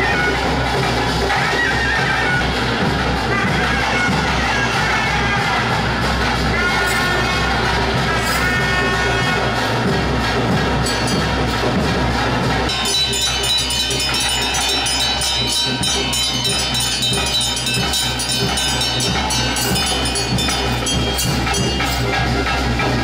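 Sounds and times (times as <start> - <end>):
music with metallic percussion: 0.0 - 23.0
ringing bell-like tones: 10.8 - 11.9, 12.7 - 23.0.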